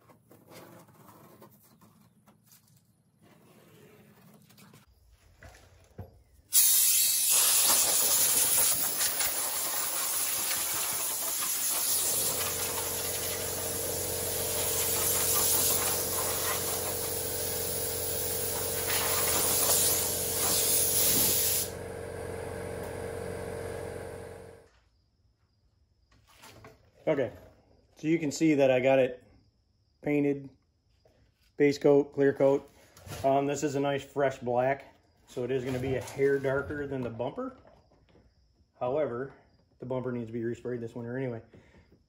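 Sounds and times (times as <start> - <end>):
compressed air hissing from hose: 6.5 - 21.8
air compressor motor hum: 6.6 - 24.7.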